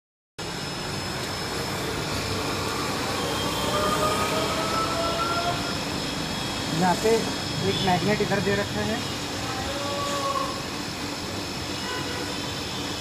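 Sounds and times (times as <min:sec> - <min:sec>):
vehicle noise: 0:00.4 - 0:13.0
faint rising tone: 0:01.4 - 0:06.8.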